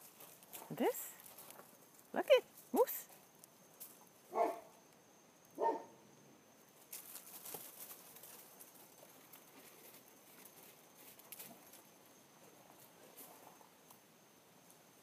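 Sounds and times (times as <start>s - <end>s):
paws scuffling on dry leaves: 6.9s - 11.8s.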